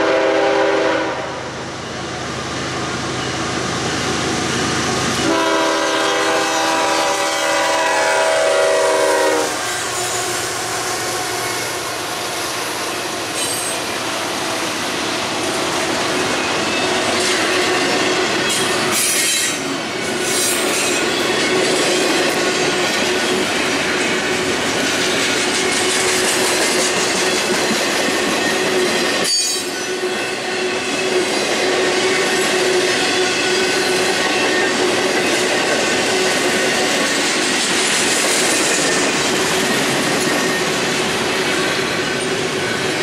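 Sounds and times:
locomotive horn blast: 0:00.0 - 0:01.5, 0:05.2 - 0:11.3
train cars rolling on rails: 0:00.0 - 0:43.0
high wheel squeal: 0:09.5 - 0:21.6, 0:26.8 - 0:35.4, 0:38.4 - 0:43.0.

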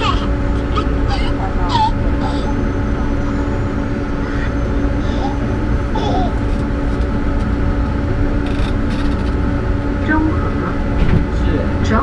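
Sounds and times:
faint voices: 0:00.0 - 0:06.3
metro train cabin rumble: 0:00.0 - 0:12.0.

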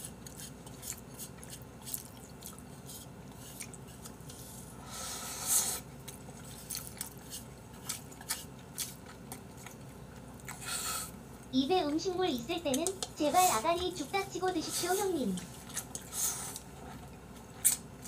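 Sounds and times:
noodle slurp: 0:00.0 - 0:04.2
wet chewing clicks and smacks: 0:00.0 - 0:04.3, 0:06.0 - 0:11.5, 0:15.4 - 0:18.0.

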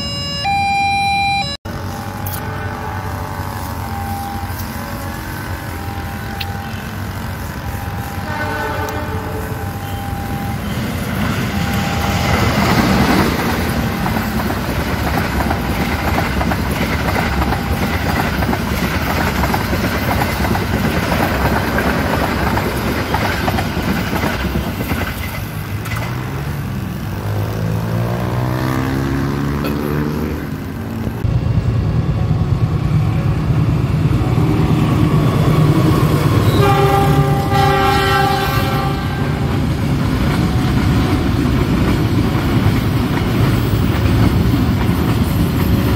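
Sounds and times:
locomotive horn blast: 0:01.2 - 0:10.8, 0:36.3 - 0:39.6
diesel trains passing: 0:01.2 - 0:45.9
train wheels rumbling on rails: 0:01.7 - 0:45.9.

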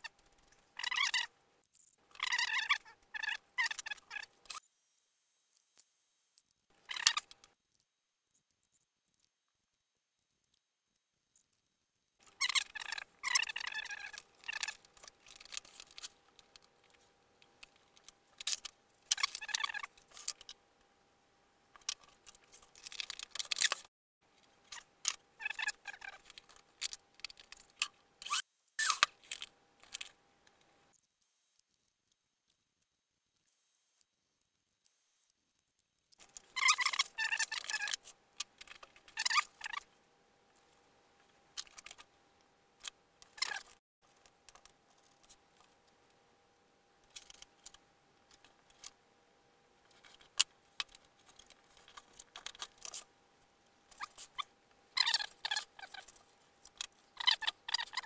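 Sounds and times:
faint steady hum: 0:44.0 - 0:58.0.

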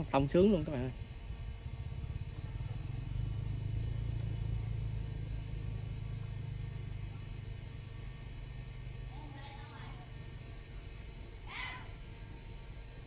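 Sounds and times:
low engine hum: 0:00.0 - 0:13.0.

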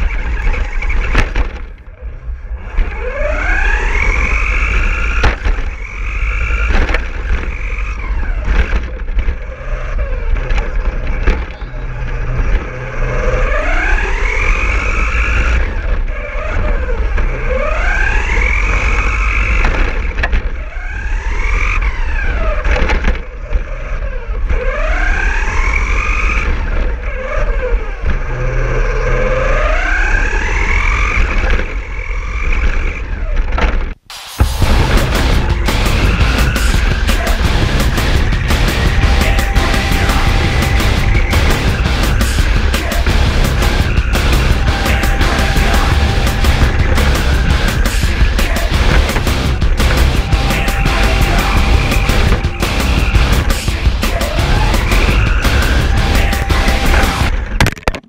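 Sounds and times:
chassis knocks: 0:33.6 - 0:58.0.

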